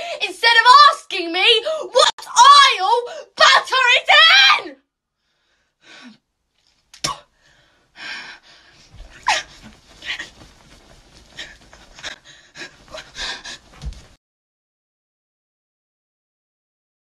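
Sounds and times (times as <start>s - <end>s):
woman panting and gasping: 0.0s - 0.2s, 1.6s - 2.0s, 3.0s - 3.4s, 5.4s - 6.2s, 7.2s - 14.2s
dull thumps: 8.8s - 14.2s.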